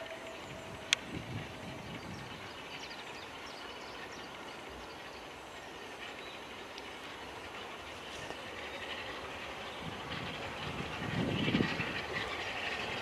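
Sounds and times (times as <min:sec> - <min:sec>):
faint high ticks: 0:00.0 - 0:01.1, 0:06.7 - 0:06.9
distant steam locomotive working hard: 0:00.0 - 0:13.0.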